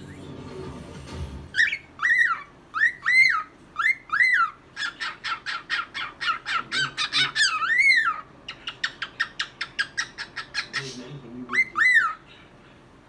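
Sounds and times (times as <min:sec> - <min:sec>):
cockatiel whistling and chirping: 0:01.5 - 0:10.9, 0:11.5 - 0:12.3.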